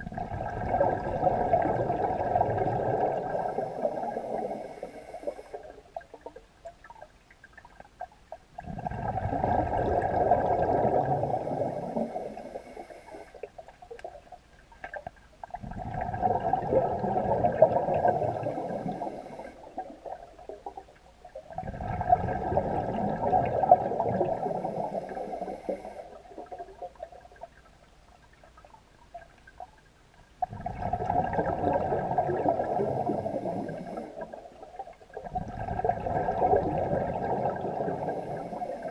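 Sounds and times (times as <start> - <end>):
scuba regulator bubbles: 0.0 - 29.7, 30.4 - 38.9.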